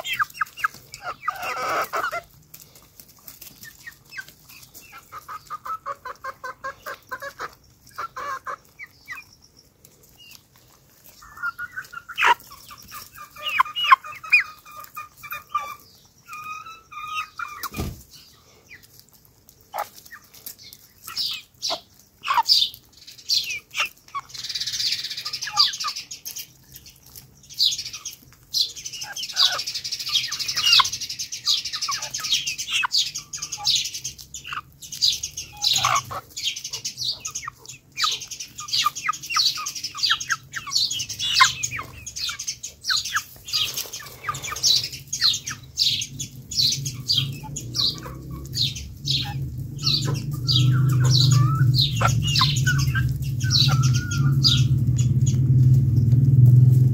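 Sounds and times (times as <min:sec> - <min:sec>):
birds chirping rapidly: 0:00.0 - 0:56.9
lower bird calls: 0:27.6 - 0:56.1
low hum: 0:45.7 - 0:56.9.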